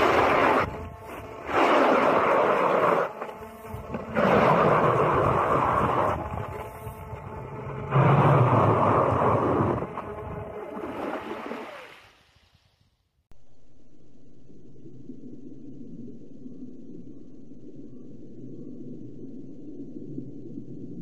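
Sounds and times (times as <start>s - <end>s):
ice auger boring through ice: 0.0s - 11.8s.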